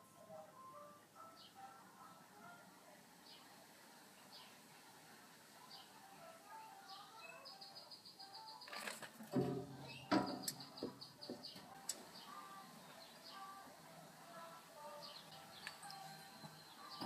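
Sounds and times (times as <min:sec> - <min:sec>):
songbirds chirping and trilling: 0:00.0 - 0:17.0
sharp knocks: 0:09.3 - 0:11.5.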